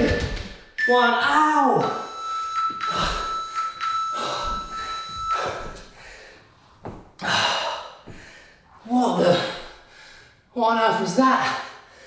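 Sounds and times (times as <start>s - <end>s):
steady high tone: 0.8s - 6.0s.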